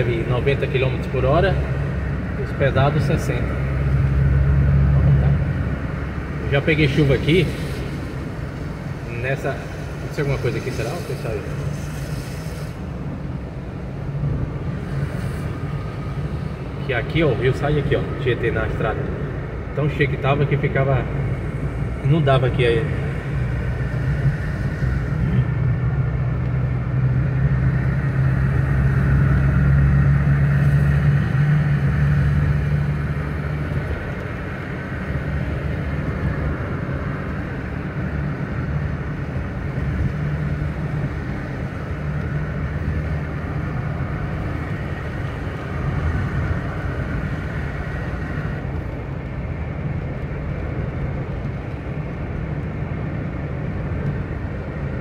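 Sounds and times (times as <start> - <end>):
car engine drone: 0.0 - 55.0
tyre hiss on wet road: 6.9 - 13.5, 14.7 - 16.2.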